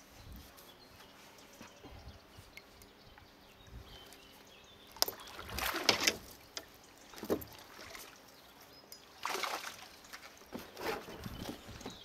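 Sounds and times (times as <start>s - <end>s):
water sloshing against kayak hull: 5.0s - 6.4s.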